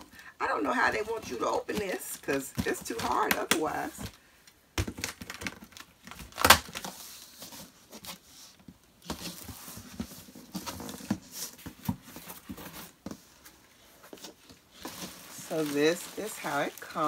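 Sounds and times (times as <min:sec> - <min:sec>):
cardboard flaps rustling: 0:04.8 - 0:17.0.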